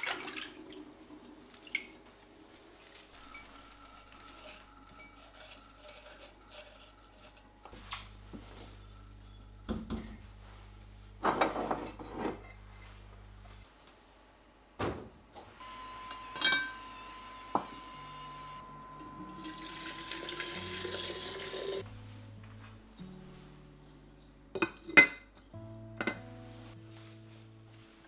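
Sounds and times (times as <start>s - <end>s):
water pouring into container: 0.0s - 2.0s, 19.3s - 21.8s
kitchenware clinking: 11.2s - 13.0s, 16.2s - 16.8s, 24.5s - 25.4s.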